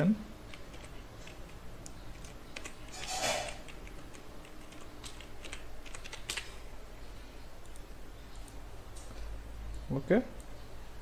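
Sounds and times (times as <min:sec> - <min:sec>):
low electrical hum: 0:00.0 - 0:11.0
keyboard keystrokes: 0:00.5 - 0:06.5.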